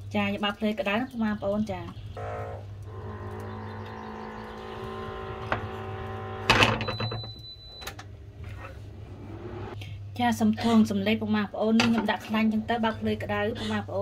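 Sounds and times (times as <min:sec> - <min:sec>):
kitchen appliance humming: 0:01.9 - 0:09.8.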